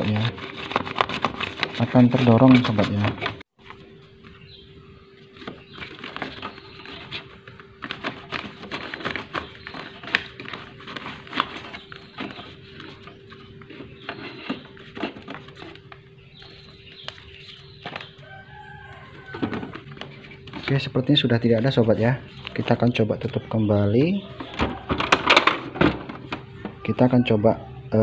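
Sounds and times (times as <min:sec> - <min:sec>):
paper scraping in printer: 0:00.0 - 0:03.5, 0:05.2 - 0:23.5
small clicks and scratches: 0:00.0 - 0:03.8, 0:05.3 - 0:18.2.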